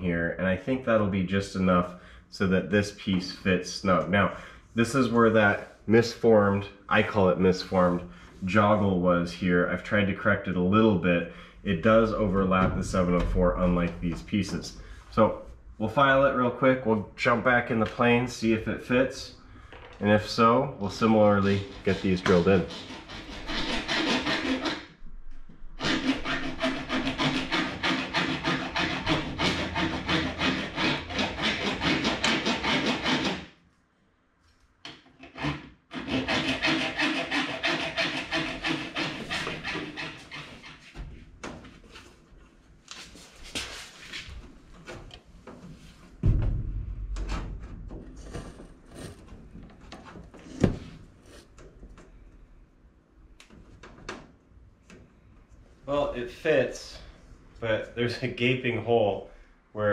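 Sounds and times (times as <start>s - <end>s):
file scraping on aluminum: 21.4s - 24.9s, 25.8s - 33.5s, 35.2s - 40.9s
sharp knocks: 46.2s - 49.2s.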